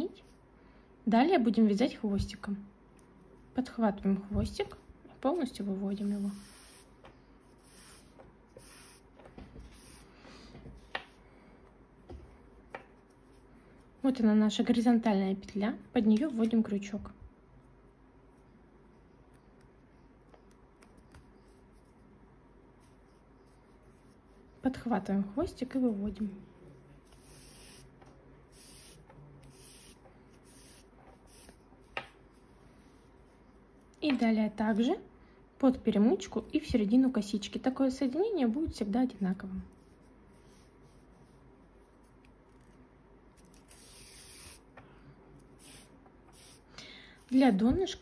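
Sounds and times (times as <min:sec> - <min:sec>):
cord rubbing and rustling: 0:04.3 - 0:14.1, 0:26.9 - 0:34.0, 0:39.7 - 0:48.0.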